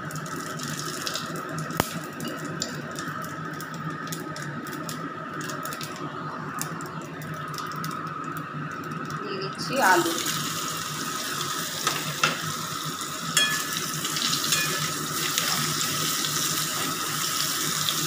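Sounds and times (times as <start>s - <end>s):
seeds sizzling in hot oil: 9.7s - 18.0s.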